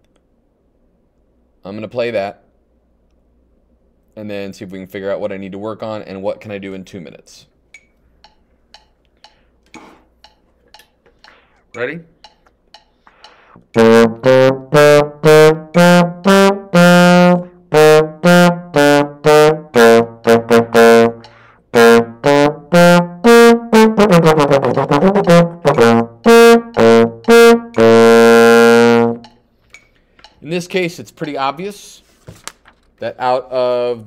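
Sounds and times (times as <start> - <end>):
trombone playing: 13.7 - 29.4.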